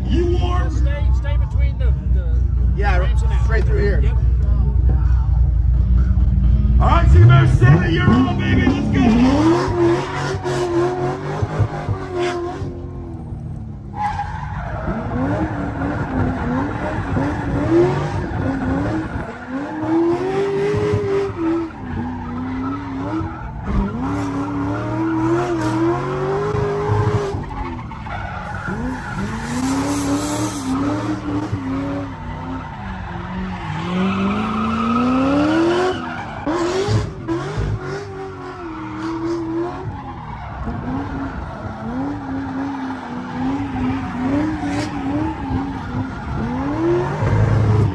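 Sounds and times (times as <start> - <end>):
tyres squealing and skidding: 7.0 - 12.8, 13.8 - 47.9
car engine revving hard: 7.1 - 12.8, 28.7 - 47.9.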